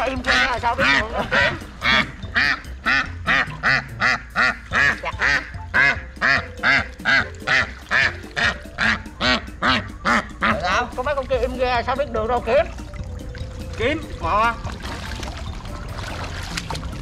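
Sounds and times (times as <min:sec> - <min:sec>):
duck quacking: 0:00.0 - 0:11.1.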